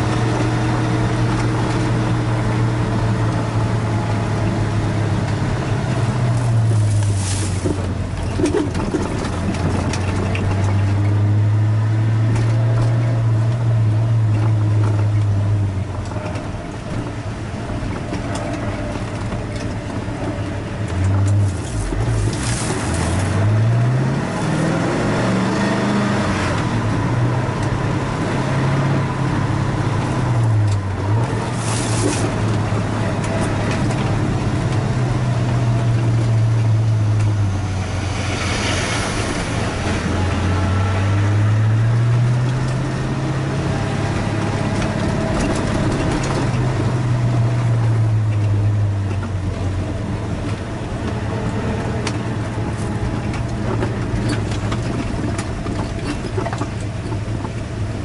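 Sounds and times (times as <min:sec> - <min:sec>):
car engine and exhaust: 0:00.0 - 0:58.0
road noise: 0:00.0 - 0:58.0.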